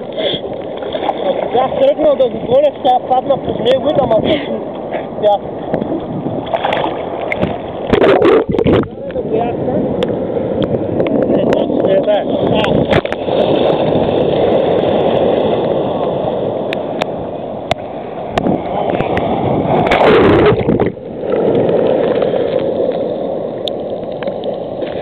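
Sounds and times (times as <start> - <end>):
water sloshing and gurgling: 0.0 - 25.0.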